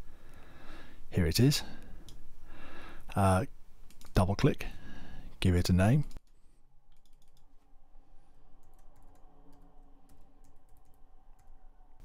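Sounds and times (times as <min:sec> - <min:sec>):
keyboard typing: 0:06.9 - 0:07.7, 0:08.6 - 0:11.6.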